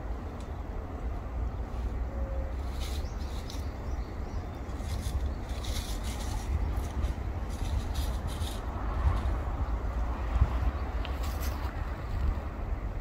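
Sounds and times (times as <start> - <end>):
steady low rumble: 0.0 - 13.0
rustling in dry leaves: 1.5 - 13.0.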